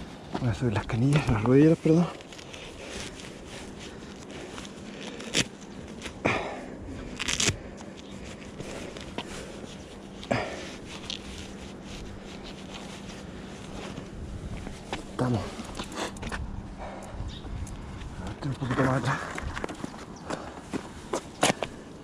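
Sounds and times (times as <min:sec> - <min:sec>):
fabric rustling: 0:08.2 - 0:15.2.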